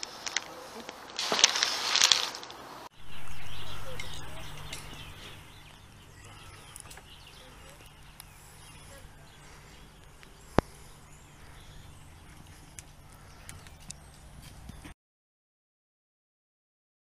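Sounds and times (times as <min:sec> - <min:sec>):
faint bird chirps: 0:02.9 - 0:14.9
low steady hum: 0:02.9 - 0:14.9.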